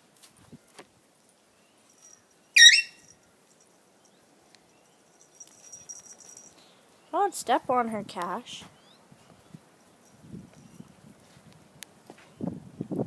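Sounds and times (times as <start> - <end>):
small dog yelping: 2.6 - 3.0
dogs shuffling on dirt: 9.2 - 12.4.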